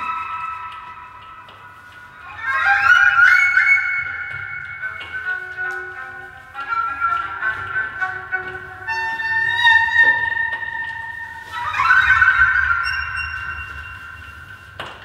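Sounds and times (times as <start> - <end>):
solo violin slow bowed notes: 0.0 - 15.0.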